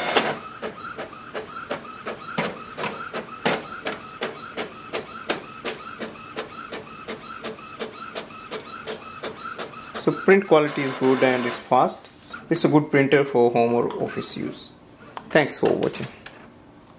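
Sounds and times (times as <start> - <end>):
inkjet printer printing: 0.0 - 11.8.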